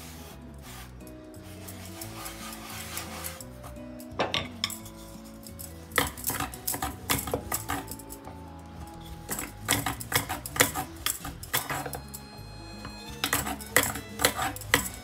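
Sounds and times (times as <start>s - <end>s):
hand brushing flour on board: 0.0s - 3.8s
soft background music: 0.0s - 15.0s.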